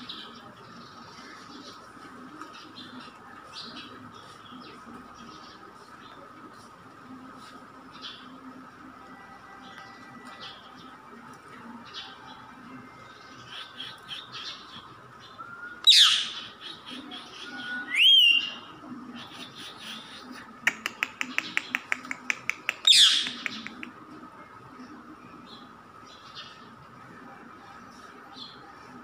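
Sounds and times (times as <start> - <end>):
parakeet screeching: 15.9 - 16.4
sharp clicks: 20.7 - 23.8.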